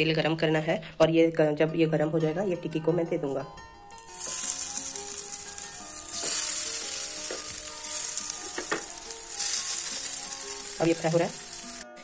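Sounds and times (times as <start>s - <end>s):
patties sizzling in hot oil: 3.9s - 12.0s.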